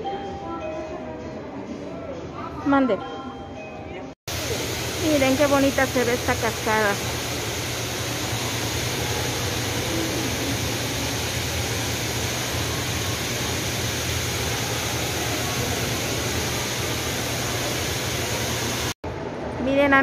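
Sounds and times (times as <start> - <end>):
water running down a stone wall: 4.3 - 19.0.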